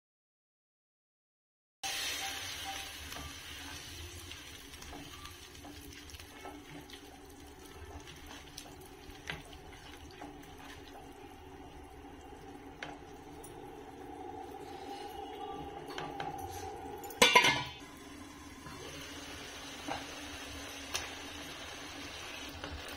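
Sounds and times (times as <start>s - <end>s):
sauce simmering in pan: 1.9s - 17.0s, 17.8s - 22.9s
faint steady hum: 6.9s - 22.3s.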